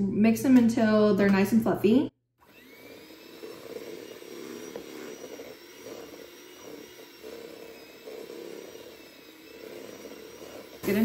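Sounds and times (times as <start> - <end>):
electric hand mixer whining: 2.4 - 11.0.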